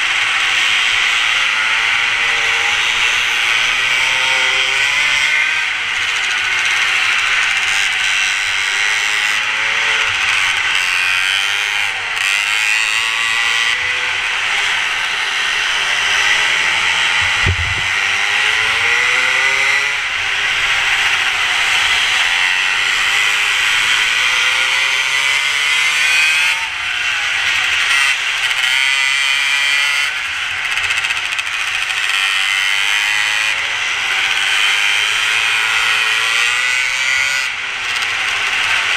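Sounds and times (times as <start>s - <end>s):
mini moto engine buzzing: 0.0s - 38.9s
short low thump: 17.2s - 17.9s.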